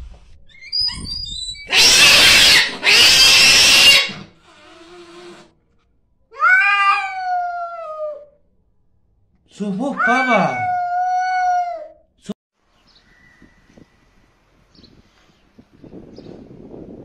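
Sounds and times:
kitten yowling: 0:00.6 - 0:04.2, 0:06.3 - 0:08.3, 0:09.9 - 0:12.0.

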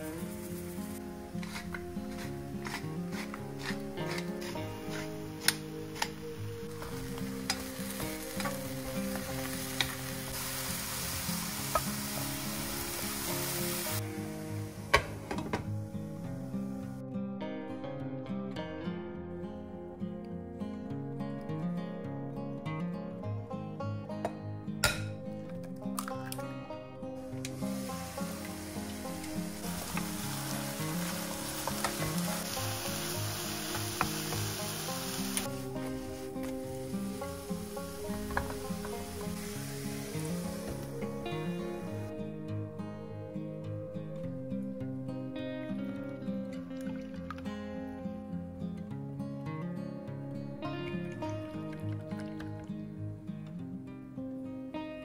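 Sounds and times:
eggplant sizzling in frying pan: 0:00.0 - 0:15.4, 0:27.4 - 0:42.0
spatula stirring: 0:00.2 - 0:06.1
glass lid clinking onto pan: 0:24.8 - 0:25.1.

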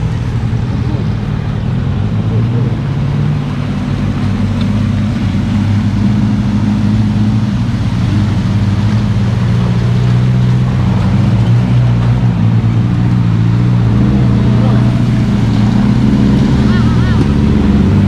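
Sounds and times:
vehicle engines droning: 0:00.0 - 0:18.0.

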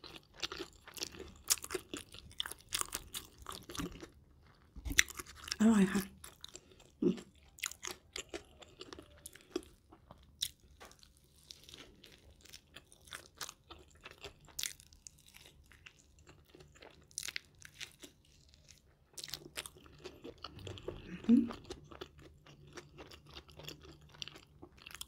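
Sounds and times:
chewing with mouth clicks: 0:00.0 - 0:25.0.

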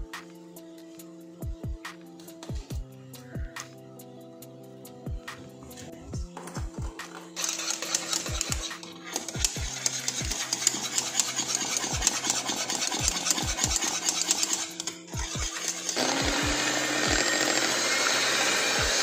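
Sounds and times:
electric hand mixer whirring: 0:06.4 - 0:19.0
whisk clattering against saucepan: 0:07.4 - 0:16.0.

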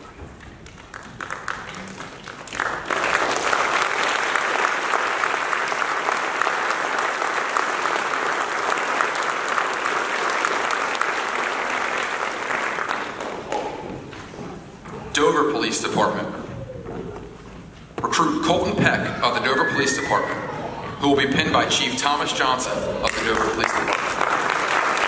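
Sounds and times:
audience applauding: 0:00.0 - 0:14.1, 0:23.0 - 0:25.0.

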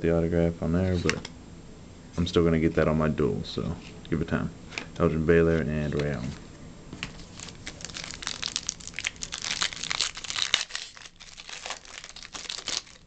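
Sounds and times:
foil wrapper tearing and crinkling: 0:07.1 - 0:13.0.

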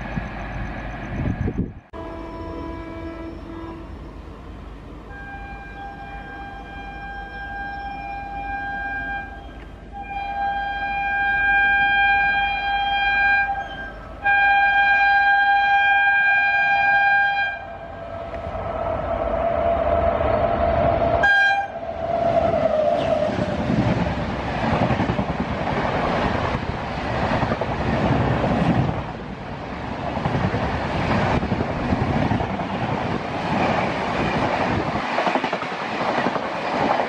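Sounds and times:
approaching train rumble: 0:00.0 - 0:37.0
train horn blasts: 0:02.0 - 0:04.1, 0:05.1 - 0:18.2, 0:21.2 - 0:21.9.

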